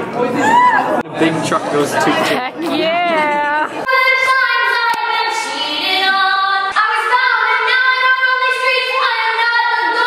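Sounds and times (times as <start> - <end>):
high voice singing unaccompanied: 3.0 - 10.0.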